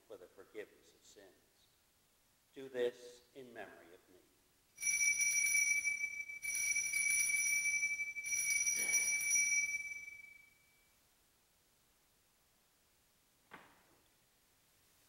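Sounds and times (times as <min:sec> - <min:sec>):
altar bells ringing: 0:04.8 - 0:10.8.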